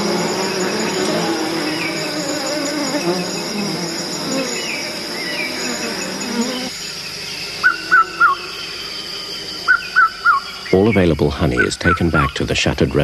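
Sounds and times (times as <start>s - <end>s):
bees buzzing: 0.0s - 9.6s
high-pitched insect drone: 0.0s - 13.0s.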